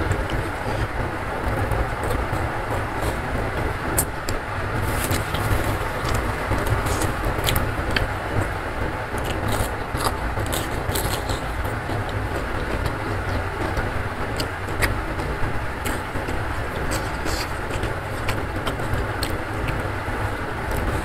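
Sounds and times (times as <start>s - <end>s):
low rumbling background noise: 0.0s - 21.0s
chewing with wet mouth clicks: 4.0s - 8.5s, 9.1s - 19.9s.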